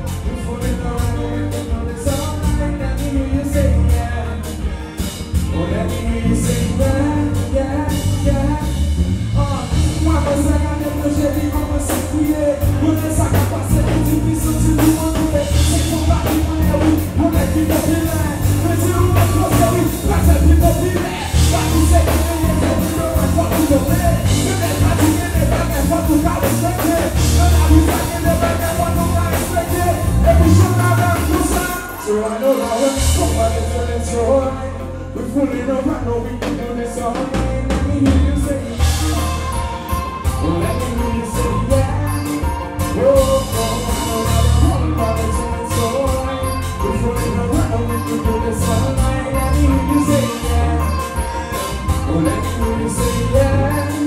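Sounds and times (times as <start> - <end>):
live band music: 0.0 - 54.0
man singing: 0.0 - 54.0.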